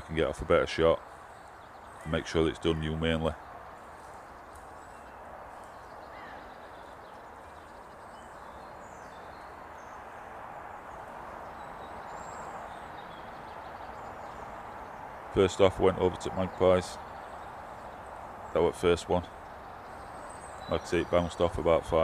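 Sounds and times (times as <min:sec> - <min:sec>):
faint high bird calls: 0:00.0 - 0:22.0
hiss of air and trees: 0:00.0 - 0:22.0.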